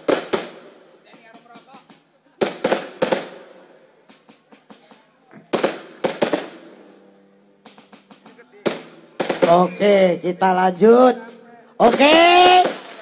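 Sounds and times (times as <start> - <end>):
small firework pops: 0.0 - 9.5
crackling echo: 0.0 - 13.0
fireworks bangs: 0.0 - 13.0.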